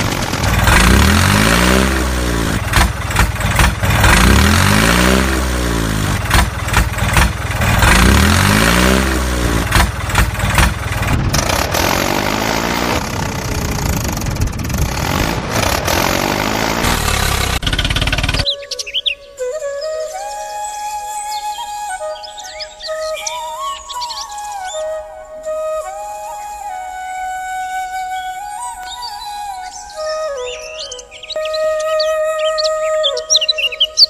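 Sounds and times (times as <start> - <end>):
toy tractor engine sound revving: 0.0 - 18.5.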